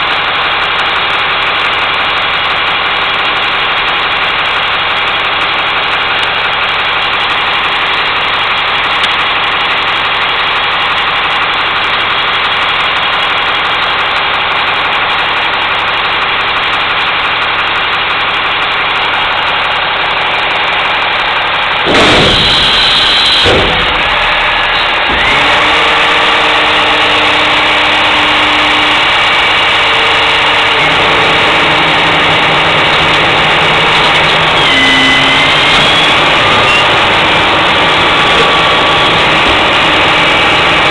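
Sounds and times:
garbage truck engine idling: 0.0 - 40.9
loud abrupt sound: 20.2 - 40.9.

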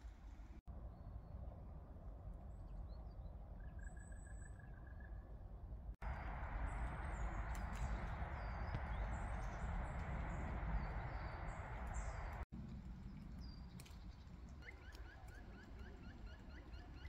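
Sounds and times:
small birds calling: 6.0 - 12.4.

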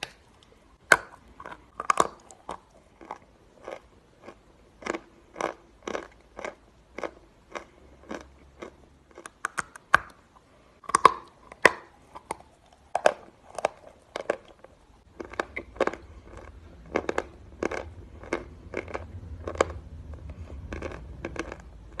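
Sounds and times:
chalk crunching being chewed: 11.0 - 22.0.

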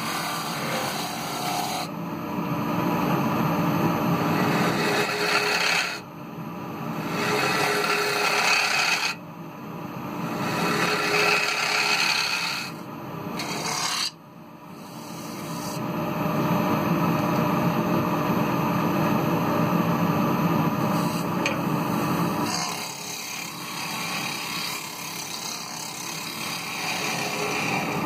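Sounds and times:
gouge scraping wood on lathe: 0.0 - 1.9, 4.4 - 6.0, 7.1 - 9.2, 10.4 - 12.8, 13.4 - 14.2, 14.8 - 15.8, 20.8 - 21.3, 22.4 - 28.0
lathe humming: 0.0 - 1.9, 4.0 - 6.0, 6.9 - 9.2, 10.2 - 12.8, 13.4 - 15.8, 20.7 - 28.0.

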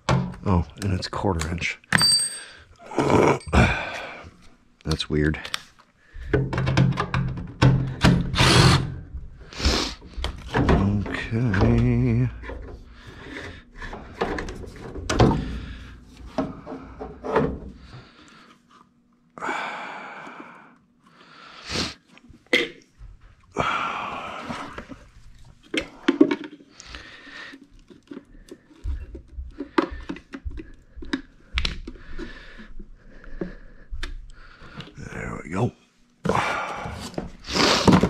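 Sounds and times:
plastic parts clicking and knocking: 4.9 - 8.4, 10.1 - 15.7, 25.6 - 26.8, 27.5 - 32.3.

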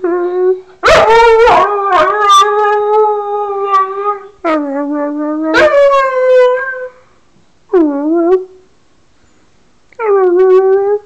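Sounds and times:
dog howling: 0.2 - 7.0.

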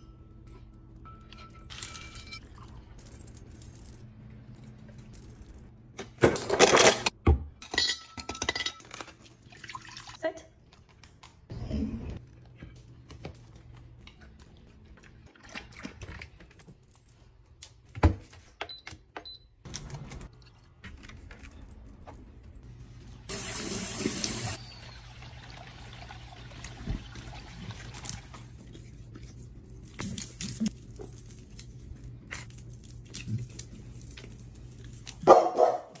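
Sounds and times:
tap water running and splashing: 23.3 - 28.5.

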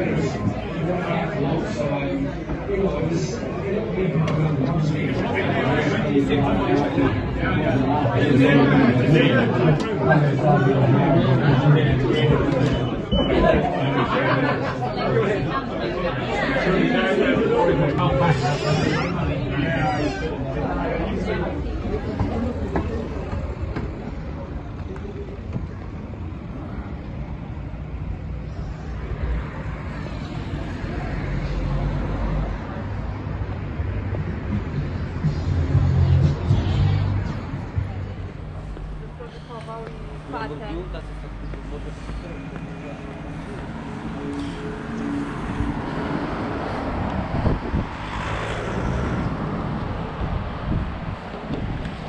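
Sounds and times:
street traffic rumble: 0.0 - 52.0
car passing close by: 44.1 - 52.0.

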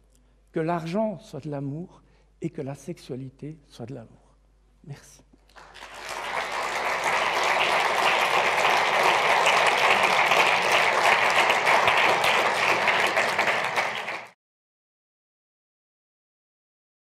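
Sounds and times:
audience applauding: 5.5 - 14.4.

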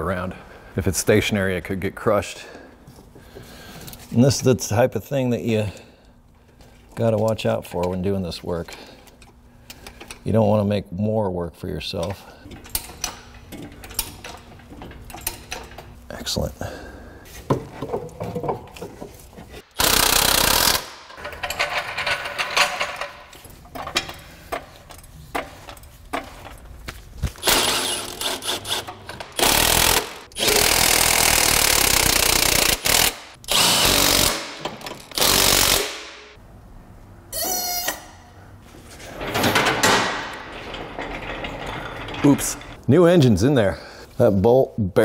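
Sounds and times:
impact wrench running: 19.6 - 23.0, 27.3 - 36.4.

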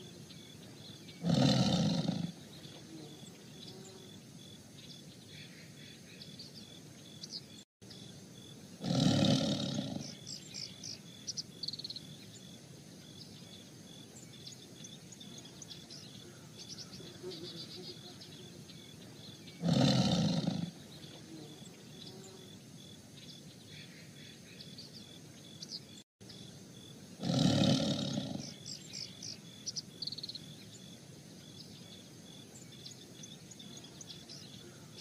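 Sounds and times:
birds chirping: 0.0 - 35.0
tigers growling: 1.1 - 2.5, 8.8 - 10.3, 19.5 - 20.8, 27.2 - 28.6.

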